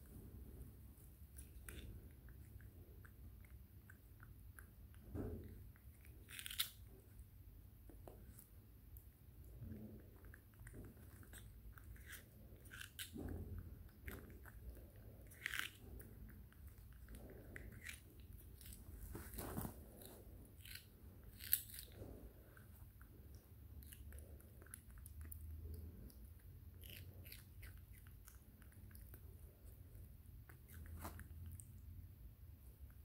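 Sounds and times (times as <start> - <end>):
monkey chewing raw vegetable: 9.6 - 31.6.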